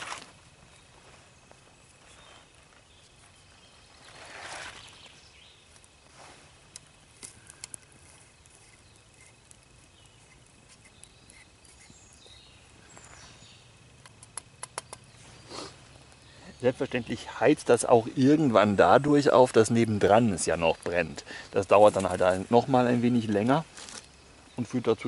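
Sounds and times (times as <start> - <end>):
twig fire crackling: 0.0 - 25.0
sharp clicks and taps: 14.0 - 15.1.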